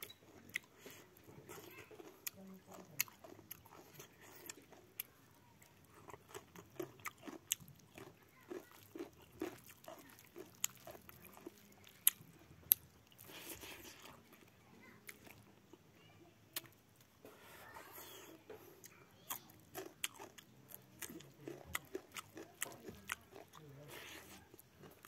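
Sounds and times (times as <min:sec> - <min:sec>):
person chewing food: 0:00.0 - 0:15.8, 0:16.6 - 0:25.0.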